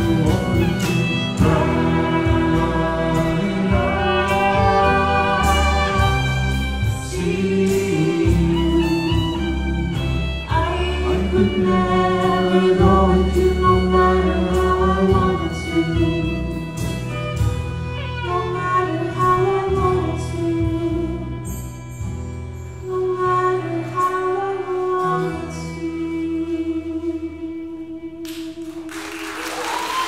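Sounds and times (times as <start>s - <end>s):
person singing: 0.0s - 17.2s
fiddle: 0.0s - 28.6s
folk band playing: 0.0s - 28.9s.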